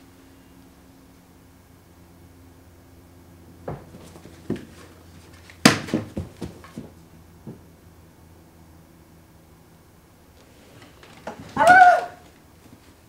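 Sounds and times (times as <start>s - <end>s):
quick footsteps: 3.6s - 7.8s
wooden pieces knocking: 3.7s - 7.6s.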